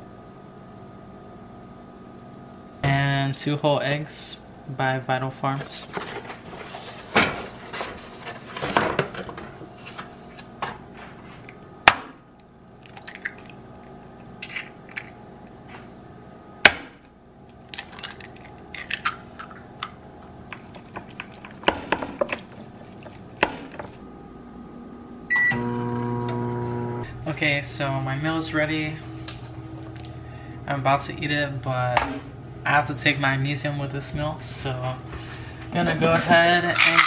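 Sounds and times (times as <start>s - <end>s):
eggs cracking on glass rim: 12.8s - 13.6s, 17.5s - 21.4s.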